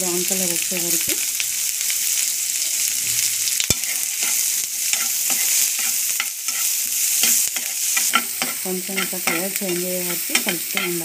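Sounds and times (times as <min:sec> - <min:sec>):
onions sizzling in oil: 0:00.0 - 0:11.0
spatula scraping pan: 0:03.7 - 0:11.0.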